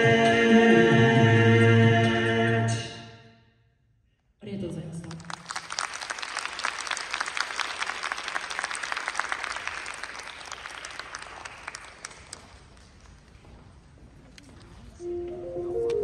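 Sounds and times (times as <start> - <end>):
audience applause: 5.2 - 13.1.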